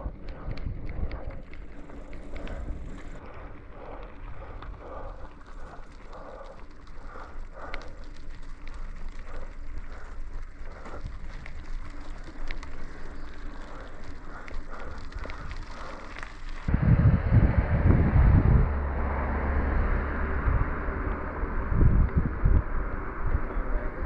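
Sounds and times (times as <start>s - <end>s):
bike clicks and rattles: 0.0s - 16.7s
bike tyres crackling over grit: 0.0s - 24.0s
wind rumble on microphone: 0.0s - 24.0s.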